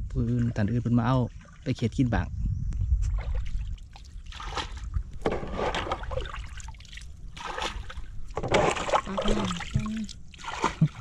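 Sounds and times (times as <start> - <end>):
water splashing around boat: 3.1 - 11.0.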